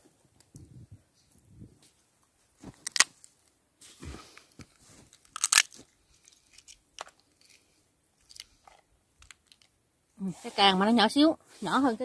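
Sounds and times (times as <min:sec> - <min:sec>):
crab shell cracking: 0:05.2 - 0:07.6, 0:08.2 - 0:08.6.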